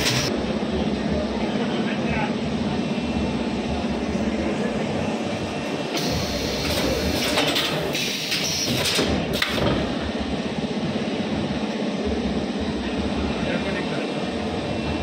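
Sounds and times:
machine low rumble: 0.0 - 7.9, 9.0 - 15.0
pneumatic cylinder clacks: 6.0 - 9.9.

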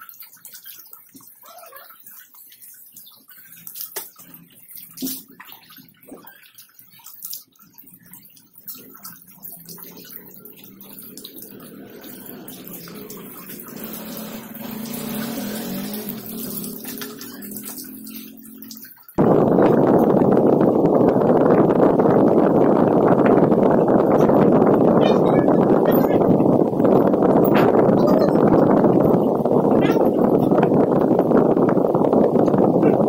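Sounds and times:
water dripping: 0.0 - 21.2
water splashing: 0.0 - 33.0.

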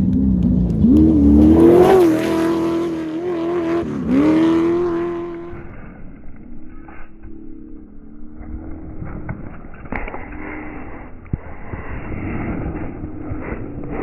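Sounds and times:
race vehicle engine revving by: 0.0 - 5.9.

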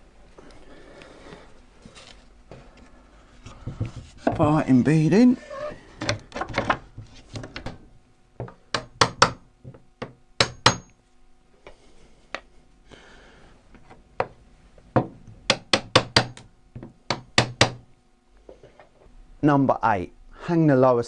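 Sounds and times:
hammer tapping chisel on wood: 8.4 - 11.0, 15.0 - 17.8.

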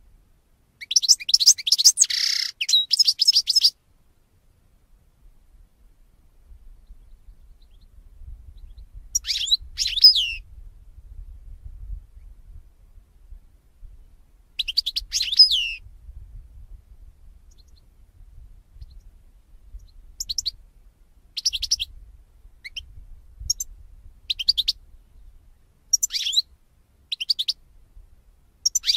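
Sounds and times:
goldfinch twittering song: 0.8 - 3.8, 8.6 - 10.4, 14.6 - 15.8, 19.7 - 20.6, 21.4 - 21.9, 22.6 - 23.7, 25.9 - 26.5, 27.1 - 27.6, 28.6 - 28.9.

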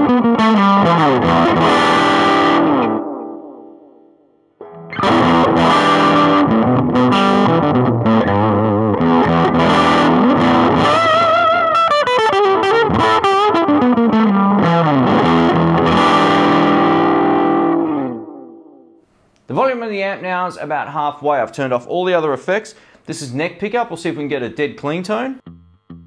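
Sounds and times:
overdriven electric guitar with delay: 0.0 - 19.0, 25.4 - 26.0.

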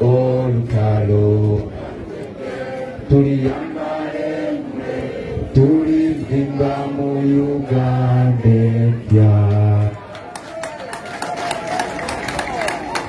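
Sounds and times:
group singing in unison: 0.0 - 10.0.

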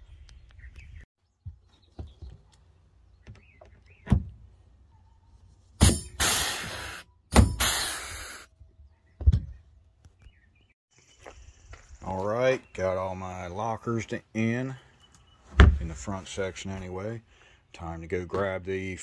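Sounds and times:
air riveter firing: 5.8 - 8.4
hissing air: 6.2 - 8.5.

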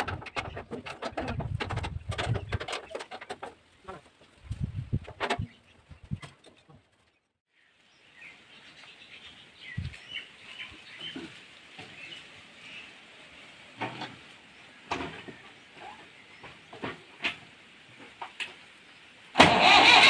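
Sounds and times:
sharp knocks and clicks: 0.0 - 3.6
small birds chirping: 5.3 - 17.2.

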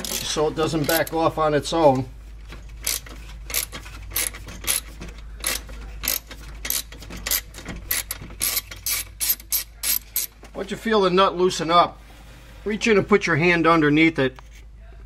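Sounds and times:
socket ratchet clicking: 2.8 - 10.3.

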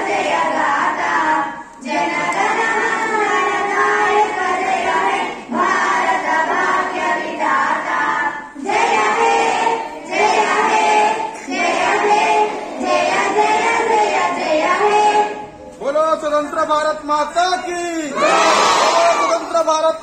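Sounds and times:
girls singing in unison: 0.0 - 15.6.

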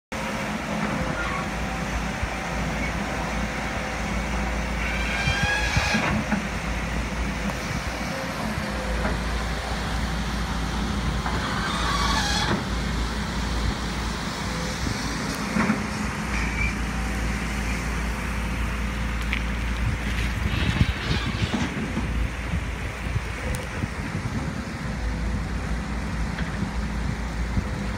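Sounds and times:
excavator diesel engine running: 0.1 - 27.9
high-pitched squeals: 4.7 - 6.3, 11.4 - 12.7.

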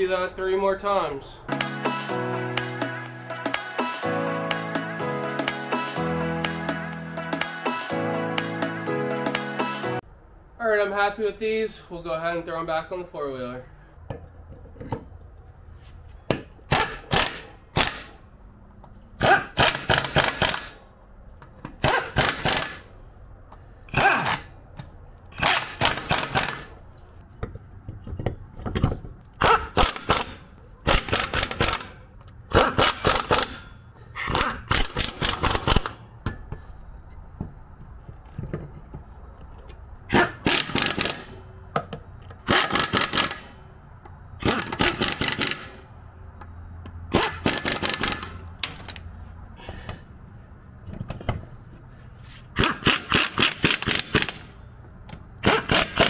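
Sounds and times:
pneumatic impact wrench hammering: 16.3 - 18.2, 19.2 - 20.8, 21.6 - 22.9, 25.3 - 26.8, 29.4 - 36.1, 40.1 - 43.6, 44.4 - 45.8, 47.1 - 48.4, 52.5 - 54.5, 55.4 - 56.0.

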